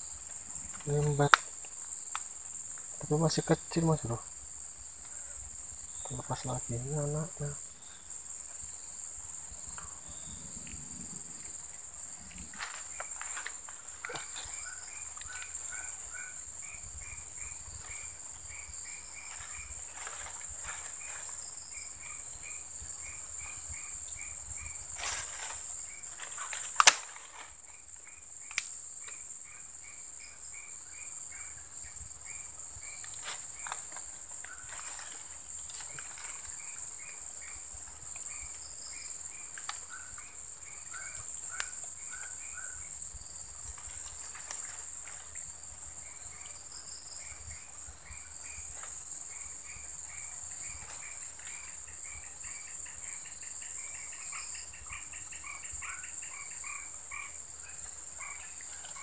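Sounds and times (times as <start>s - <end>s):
insects droning: 0.0s - 59.0s
sharp click: 26.8s - 27.1s.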